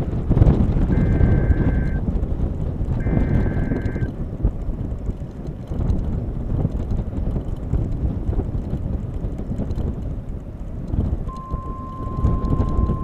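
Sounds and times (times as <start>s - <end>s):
wind buffeting microphone: 0.0s - 13.0s
steady high beep tone: 0.9s - 2.0s, 3.0s - 4.1s, 11.3s - 13.0s.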